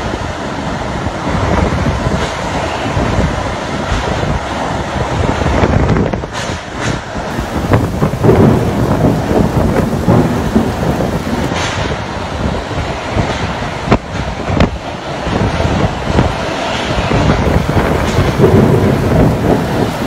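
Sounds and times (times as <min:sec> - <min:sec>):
strong gusting wind: 0:00.0 - 0:20.0
wind buffeting microphone: 0:07.2 - 0:20.0
heavy driving rain: 0:07.3 - 0:11.6, 0:17.4 - 0:20.0.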